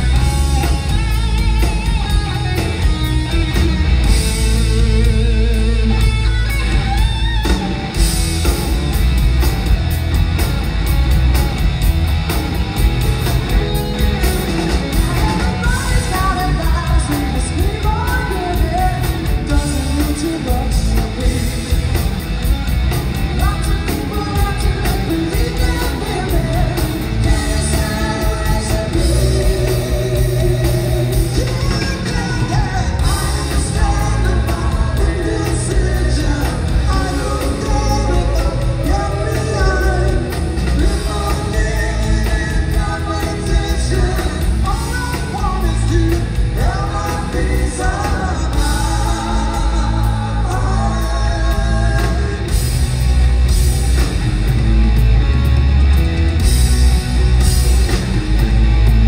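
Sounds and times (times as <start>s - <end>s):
drum kit: 0.0s - 59.0s
electric guitars: 0.0s - 59.0s
person singing: 14.9s - 22.0s, 23.4s - 52.7s
backing singers: 23.4s - 52.8s.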